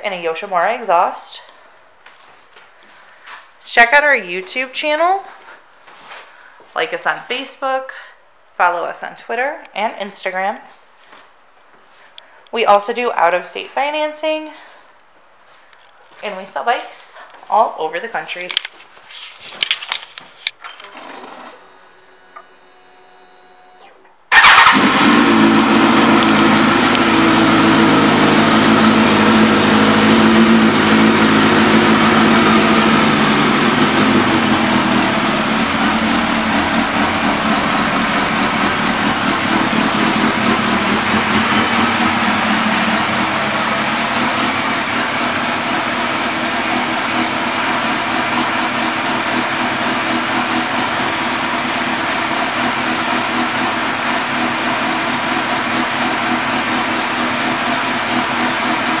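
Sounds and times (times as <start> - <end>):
motorcycle engine idling: 31.7 - 47.2.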